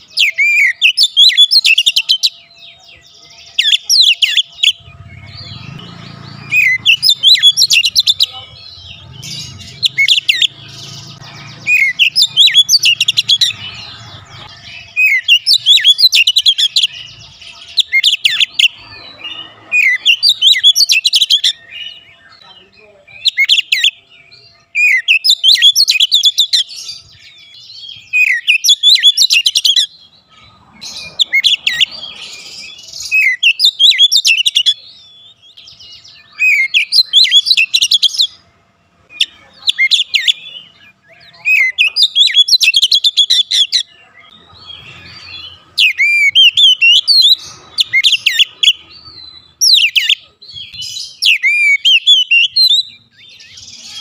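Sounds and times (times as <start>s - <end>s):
bird singing whistles and chatter: 0.0s - 38.4s, 39.0s - 54.0s.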